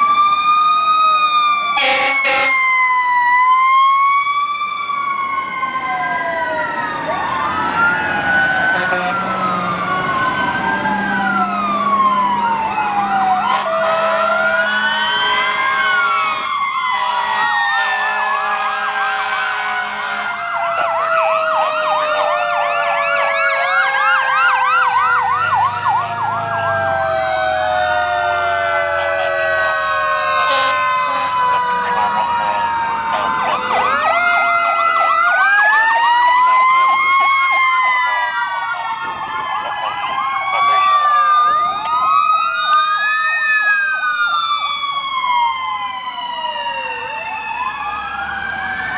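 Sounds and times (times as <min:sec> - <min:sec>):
fire truck sirens wailing: 0:00.0 - 0:48.9
horn notes: 0:08.8 - 0:09.3.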